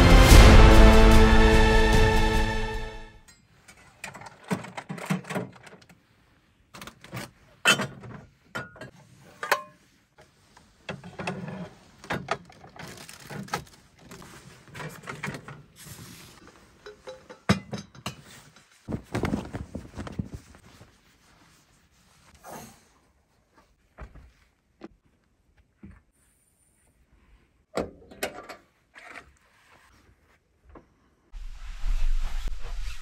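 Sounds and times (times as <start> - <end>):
rustling: 18.2 - 22.4.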